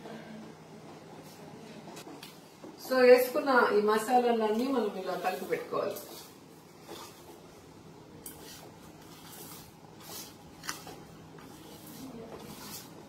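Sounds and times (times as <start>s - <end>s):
soft rustling of spice powder: 4.7s - 13.0s.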